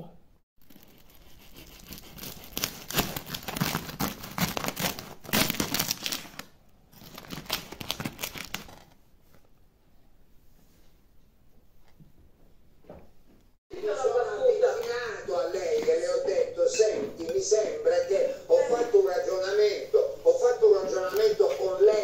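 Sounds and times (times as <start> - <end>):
knife sawing through bread crust: 0.6 - 5.2.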